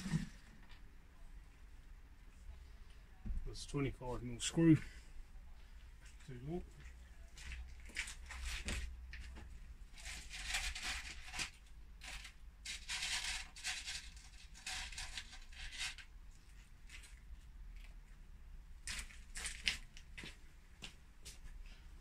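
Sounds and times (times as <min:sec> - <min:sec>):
packaging rustling and scratching: 0:09.9 - 0:16.1, 0:18.8 - 0:20.0.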